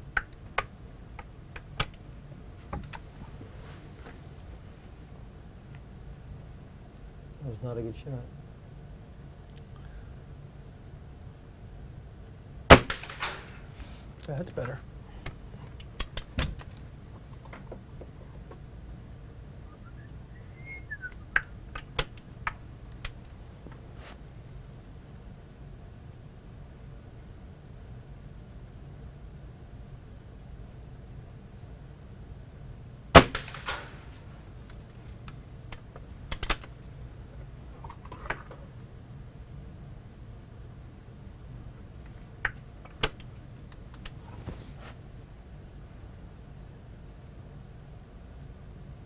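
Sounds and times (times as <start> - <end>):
steady low hum: 0.0 - 49.0
air rifle shot: 12.7 - 13.8, 33.1 - 34.2
air rifle cocking clicks: 15.2 - 16.9, 35.3 - 36.7.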